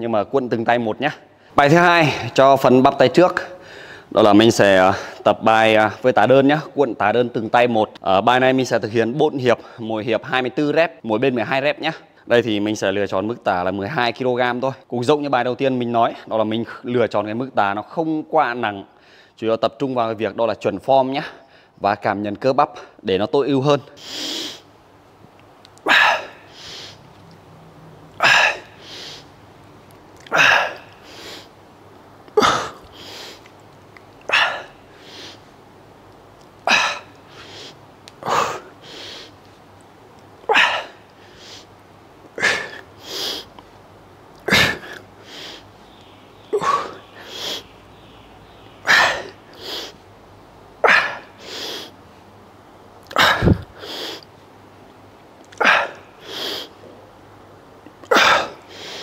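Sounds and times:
man breathing forcefully: 3.6s - 4.1s, 25.8s - 27.0s, 28.2s - 29.3s, 30.3s - 31.6s, 32.4s - 33.5s, 34.3s - 35.5s, 36.7s - 39.4s, 45.2s - 45.7s, 50.9s - 52.0s, 53.1s - 54.3s, 55.6s - 56.8s, 58.2s - 59.0s.

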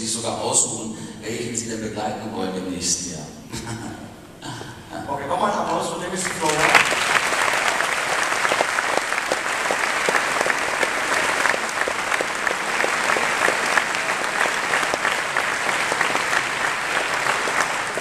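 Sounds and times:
audience applauding: 6.0s - 18.0s.

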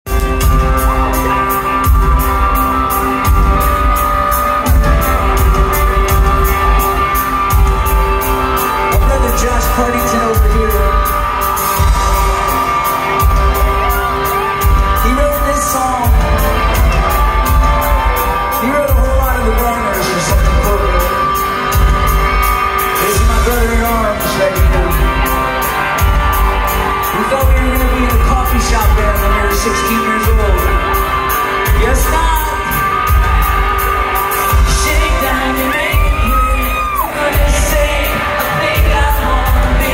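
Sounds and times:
live rock band playing: 0.0s - 39.9s
person singing: 22.8s - 39.9s.

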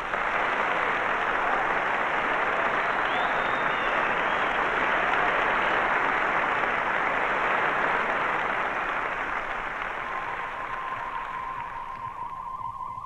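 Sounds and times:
audience applauding: 0.0s - 13.0s
theremin-like high tone: 10.1s - 13.0s.

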